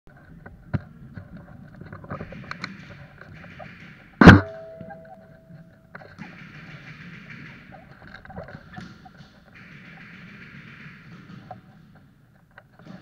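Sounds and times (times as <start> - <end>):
loud sharp bang: 4.2 - 5.0
thin ringing tone: 4.3 - 5.9.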